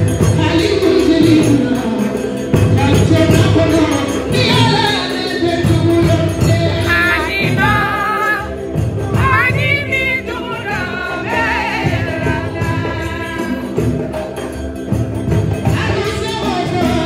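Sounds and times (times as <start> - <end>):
hand drums playing: 0.0 - 17.0
woman singing through pa: 4.2 - 14.0.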